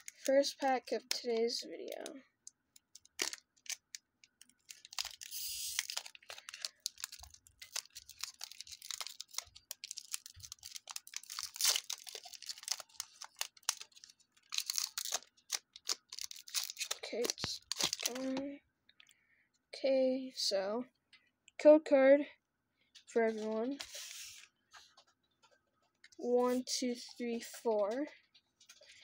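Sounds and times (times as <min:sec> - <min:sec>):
foil wrapper tearing: 0:00.0 - 0:01.0, 0:02.9 - 0:18.4
foil wrapper crinkling: 0:00.0 - 0:02.1, 0:02.8 - 0:18.4.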